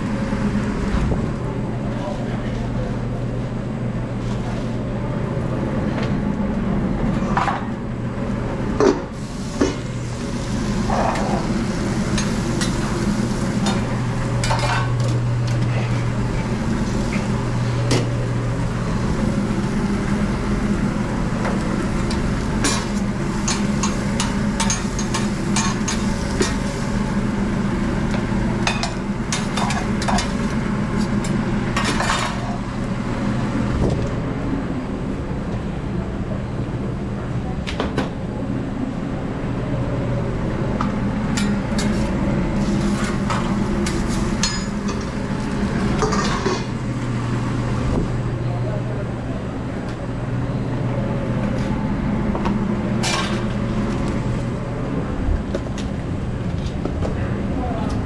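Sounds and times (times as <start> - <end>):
steady low hum: 0.0 - 58.0
food frying and sizzling: 9.2 - 31.7, 41.9 - 47.7
utensils and pans clinking: 14.4 - 15.6, 28.7 - 30.4, 43.0 - 45.2, 46.0 - 46.8.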